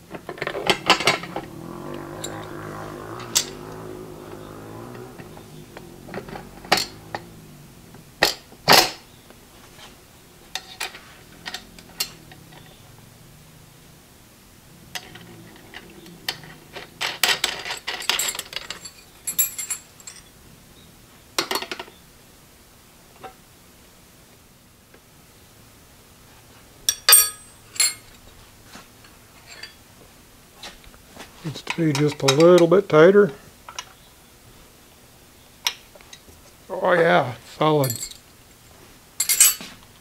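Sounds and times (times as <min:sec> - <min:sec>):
metal clinks and clicks of bolts: 0:15.0 - 0:20.3, 0:26.9 - 0:28.1, 0:37.8 - 0:38.2, 0:39.2 - 0:39.7.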